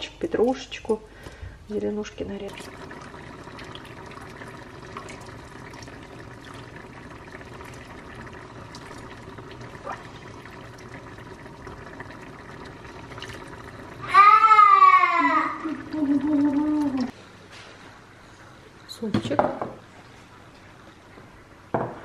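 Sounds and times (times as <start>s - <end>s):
liquid pouring into bowl: 2.4s - 14.6s, 15.2s - 17.2s.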